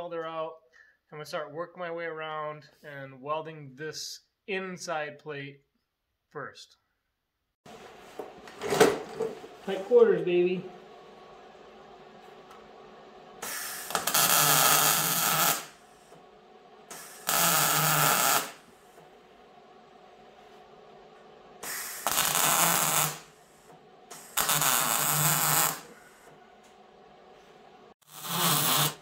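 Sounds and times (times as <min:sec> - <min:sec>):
arc welding crackling hiss: 0:13.4 - 0:16.1, 0:16.9 - 0:18.8, 0:21.6 - 0:26.2, 0:28.0 - 0:29.0.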